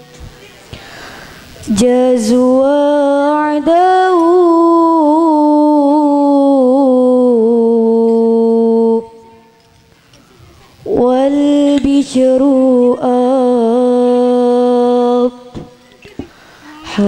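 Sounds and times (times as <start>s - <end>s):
woman singing unaccompanied: 1.6s - 9.7s, 10.8s - 15.8s, 16.8s - 17.0s.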